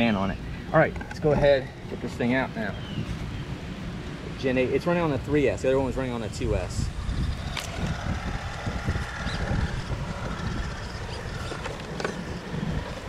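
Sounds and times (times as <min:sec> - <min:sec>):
wind rumble on microphone: 0:02.7 - 0:13.0
motor and gear whine: 0:06.6 - 0:13.0.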